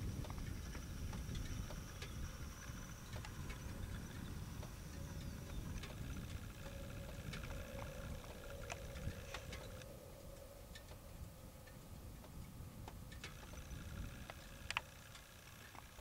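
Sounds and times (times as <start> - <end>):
distant engine rumble: 0.0 - 16.0
faint steady whine: 0.0 - 16.0
sharp clicks: 11.7 - 16.0.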